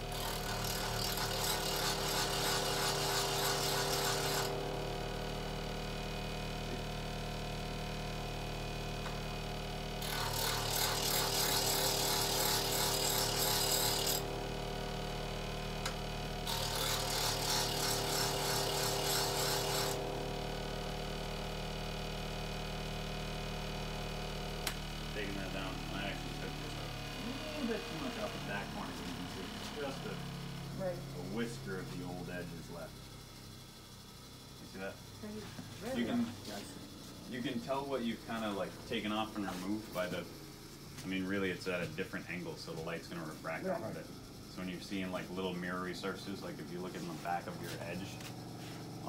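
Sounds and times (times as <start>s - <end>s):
bench grinder motor hum: 0.0s - 49.0s
steel grinding on wheel: 0.1s - 4.6s, 10.0s - 14.3s, 16.4s - 20.0s.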